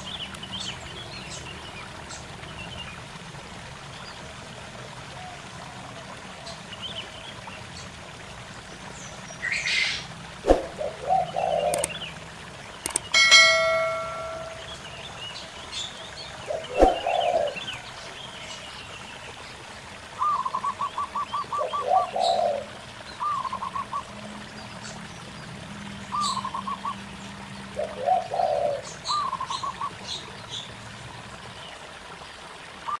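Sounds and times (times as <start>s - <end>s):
trickling stream: 0.0s - 33.0s
doves cooing: 10.5s - 12.0s, 16.5s - 17.7s, 20.2s - 23.8s, 27.8s - 29.8s
small birds chirping: 10.8s - 19.2s.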